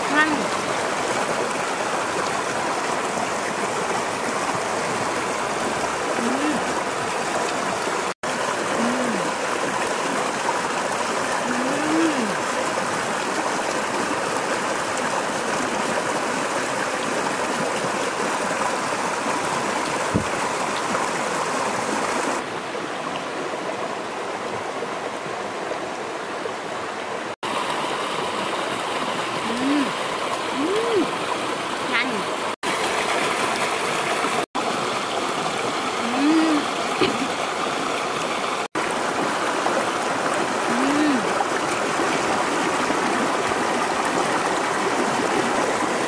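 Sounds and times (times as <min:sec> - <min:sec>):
stream rushing over rocks: 0:00.0 - 0:46.0
person humming: 0:06.2 - 0:06.7, 0:08.7 - 0:09.4, 0:11.5 - 0:12.4, 0:29.4 - 0:31.1, 0:36.0 - 0:37.3, 0:40.7 - 0:41.3.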